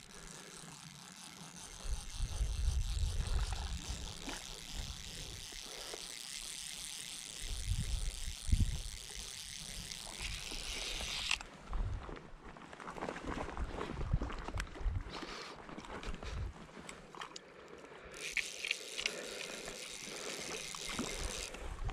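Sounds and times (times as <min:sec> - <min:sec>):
fishing reel ratchet buzzing: 0:00.0 - 0:11.5, 0:18.1 - 0:21.9.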